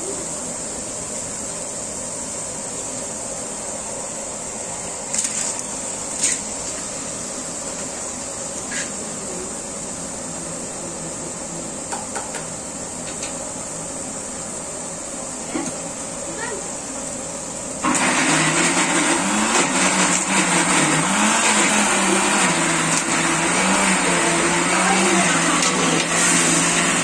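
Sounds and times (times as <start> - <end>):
cooking pot hissing: 0.0 - 3.6, 20.5 - 27.0.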